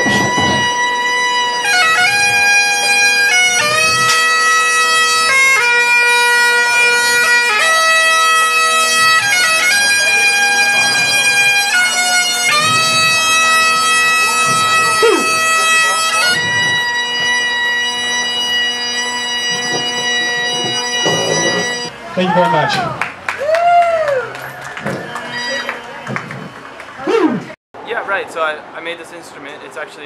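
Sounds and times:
bagpipe melody over drone: 0:00.0 - 0:21.9, 0:24.9 - 0:26.4.

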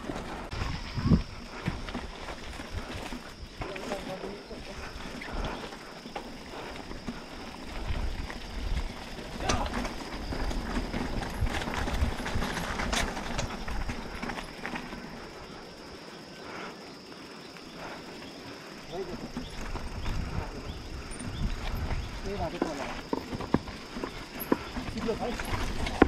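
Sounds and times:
wind rumble on microphone: 0:00.0 - 0:03.6, 0:07.1 - 0:14.4, 0:19.2 - 0:22.6
mountain bike rattling on trail: 0:00.0 - 0:26.0.

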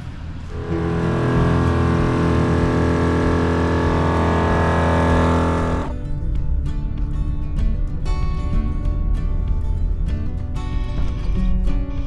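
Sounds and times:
air compressor running: 0:00.5 - 0:05.9.

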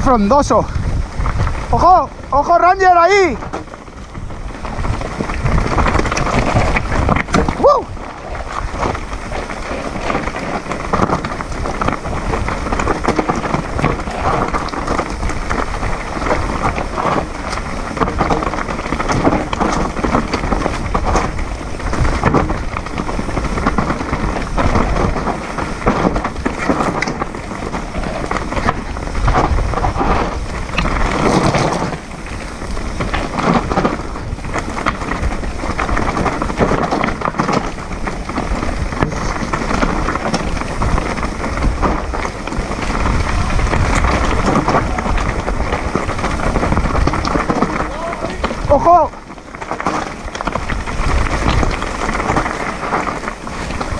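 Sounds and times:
bike knocks and rattles: 0:00.0 - 0:53.9
tyres crunching over dirt and stones: 0:00.0 - 0:53.9
wind rumble on microphone: 0:00.0 - 0:53.9.

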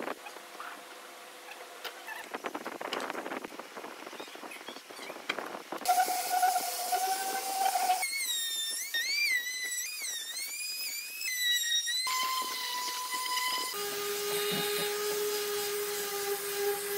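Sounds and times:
electric woodworking tools whining: 0:05.9 - 0:16.9.

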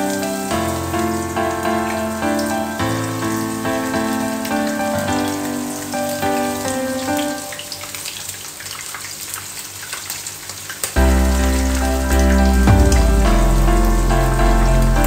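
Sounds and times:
squid deep-frying in oil: 0:00.0 - 0:15.0
background music with heavy bass: 0:11.0 - 0:15.0.

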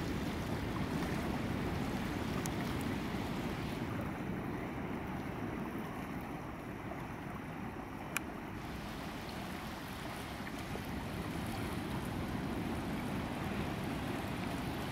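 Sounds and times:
wind on microphone: 0:00.0 - 0:06.4
river flowing over gravel: 0:00.0 - 0:07.8, 0:08.5 - 0:14.9.

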